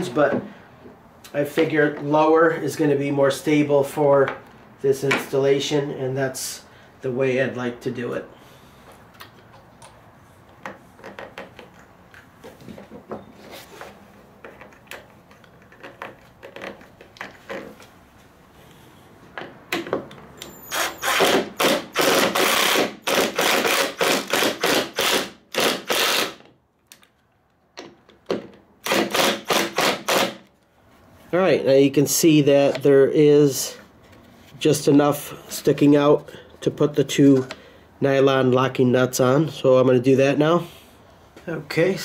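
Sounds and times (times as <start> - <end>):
cordless drill driving bolts: 20.4 - 26.5, 28.8 - 30.5.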